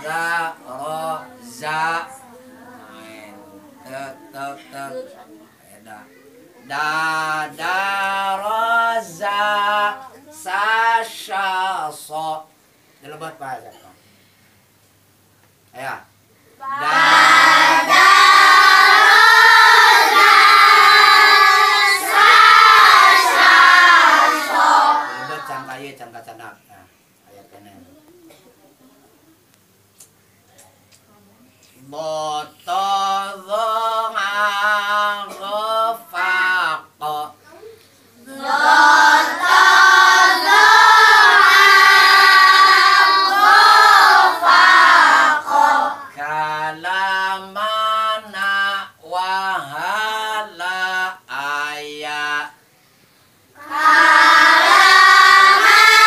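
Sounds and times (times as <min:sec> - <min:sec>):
children chanting in unison: 0:16.6 - 0:25.8, 0:38.2 - 0:46.3, 0:53.6 - 0:56.0.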